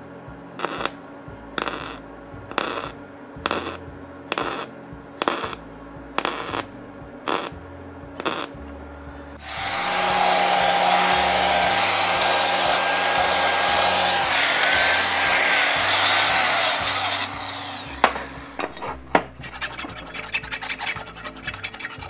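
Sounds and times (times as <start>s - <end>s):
welding arc bursts: 0.6s - 1.0s, 1.6s - 2.9s, 3.5s - 5.6s, 6.2s - 6.7s, 7.3s - 7.5s, 8.2s - 8.5s, 9.4s - 19.0s
angle grinder grinding steel: 9.4s - 22.0s.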